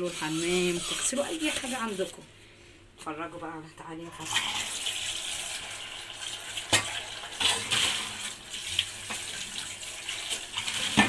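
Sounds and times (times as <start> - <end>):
tap water running into sink: 4.2 - 11.0.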